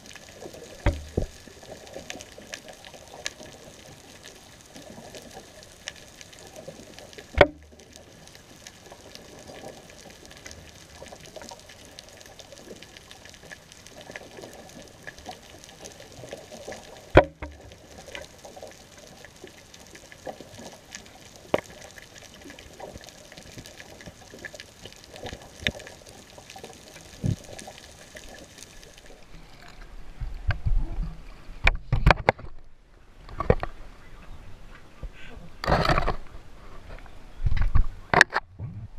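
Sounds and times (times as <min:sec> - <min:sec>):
water splashing and buffeting: 0:00.0 - 0:38.9
sharp knocks: 0:00.8 - 0:01.3.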